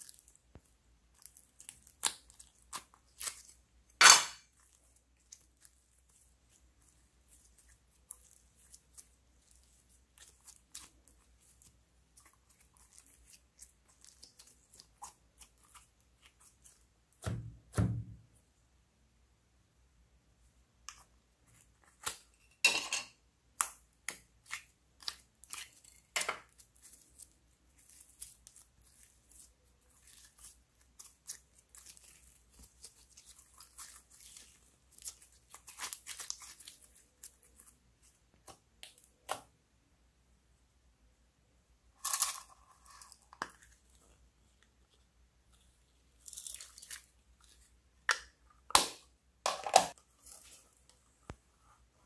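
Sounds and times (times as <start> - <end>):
slime crackling and popping: 0.0 - 17.3, 23.6 - 39.5.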